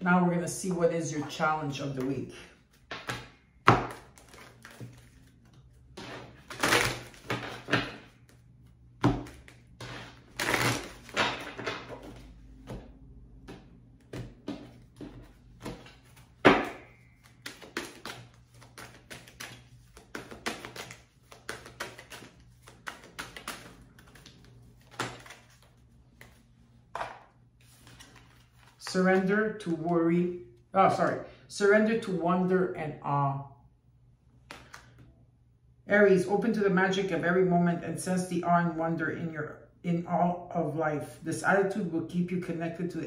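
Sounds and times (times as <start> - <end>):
cards shuffling and rustling: 1.8 - 29.9, 34.4 - 35.0.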